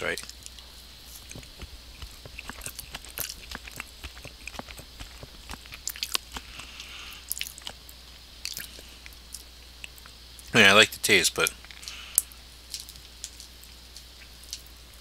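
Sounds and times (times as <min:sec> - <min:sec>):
wet mouth clicks and smacks: 0:00.2 - 0:10.1
person chewing: 0:00.5 - 0:10.1.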